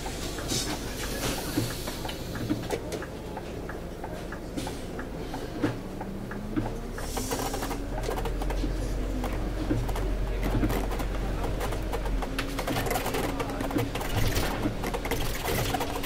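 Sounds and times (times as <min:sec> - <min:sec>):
bus engine running: 0:00.0 - 0:16.0
small clicks and rattles: 0:07.2 - 0:16.0.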